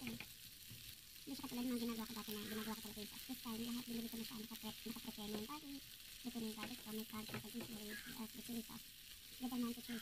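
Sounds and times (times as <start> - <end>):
shrimp sizzling in a frying pan: 0.0 - 10.0.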